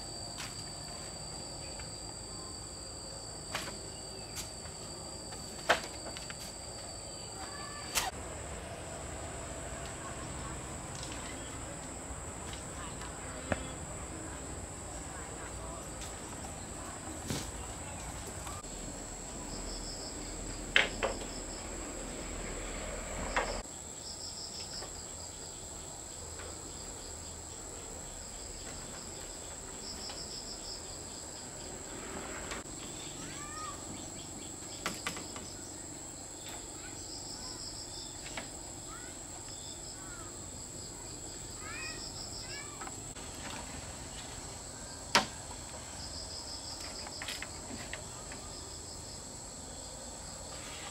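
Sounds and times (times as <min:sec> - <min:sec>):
high insect drone: 0:00.0 - 0:50.9
pulsed cricket chirps: 0:00.0 - 0:50.9.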